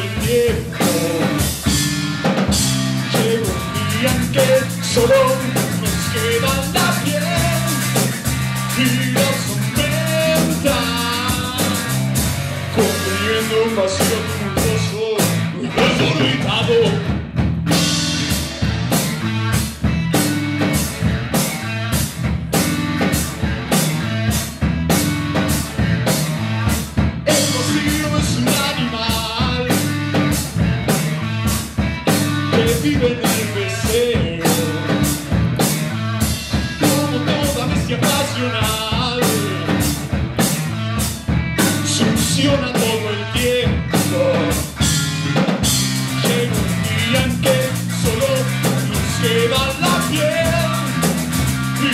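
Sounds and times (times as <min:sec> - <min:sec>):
drum kit: 0:00.0 - 0:51.9
electric bass: 0:00.0 - 0:51.9
electric guitars: 0:00.0 - 0:51.9.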